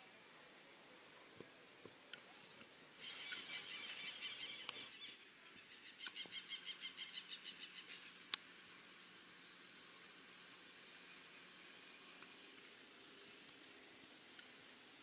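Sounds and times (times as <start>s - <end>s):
bird chirping: 2.3s - 8.2s.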